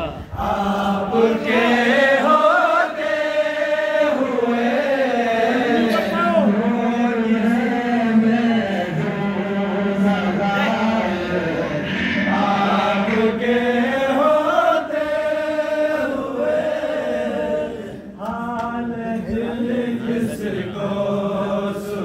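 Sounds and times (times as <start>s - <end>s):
man singing unaccompanied: 0.4s - 11.7s
low hum: 11.2s - 14.0s.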